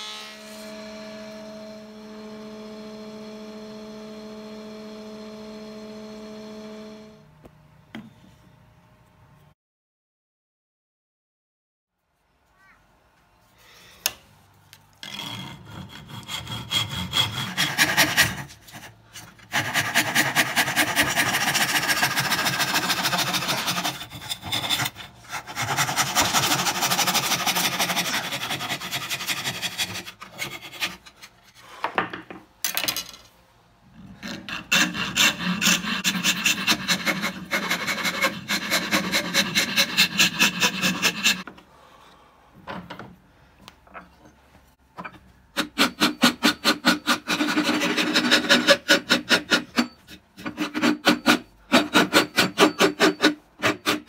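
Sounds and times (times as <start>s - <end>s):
hand file rasping wood: 15.0s - 31.3s, 34.2s - 41.5s, 45.5s - 54.0s.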